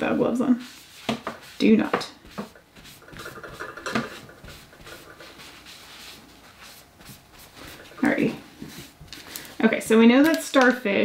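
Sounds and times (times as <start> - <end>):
jewelry rubbing and scraping: 2.4 - 9.0.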